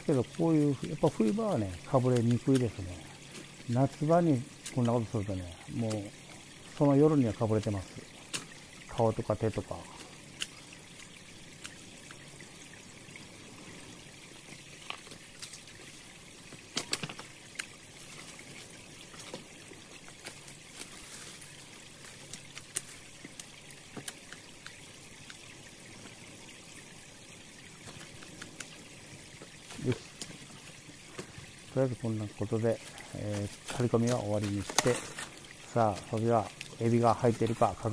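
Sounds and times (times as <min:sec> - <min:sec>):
pruning shears snipping brush: 0:00.0 - 0:10.6, 0:32.5 - 0:37.9
stream water trickling: 0:00.0 - 0:37.9.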